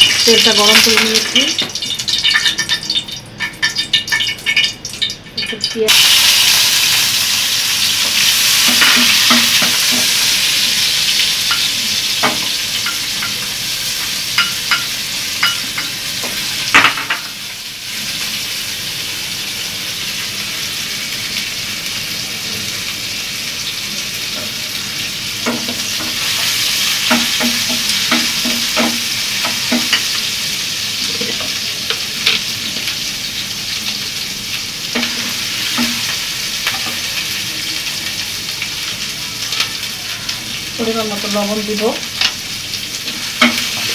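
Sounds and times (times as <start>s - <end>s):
onions sizzling in oil: 0.0s - 43.9s
spatula knocking and scraping pan: 8.0s - 10.2s, 11.5s - 13.4s, 14.4s - 17.3s, 25.4s - 30.2s, 34.9s - 37.0s, 43.1s - 43.9s.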